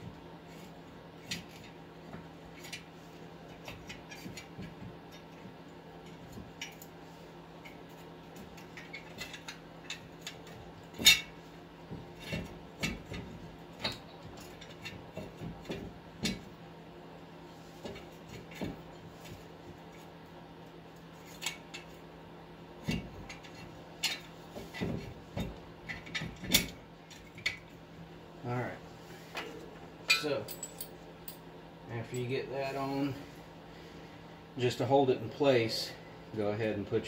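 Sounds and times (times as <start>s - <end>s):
metal clinks and knocks: 30.0s - 32.4s.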